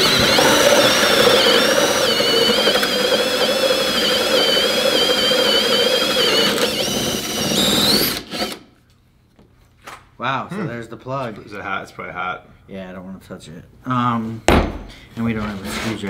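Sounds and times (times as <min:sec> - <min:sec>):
drill whining through wood: 0:00.0 - 0:08.7.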